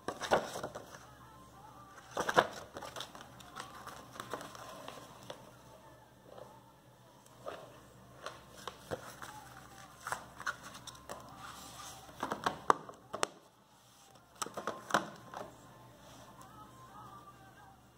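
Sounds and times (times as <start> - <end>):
paper insert rustling: 8.2 - 12.4.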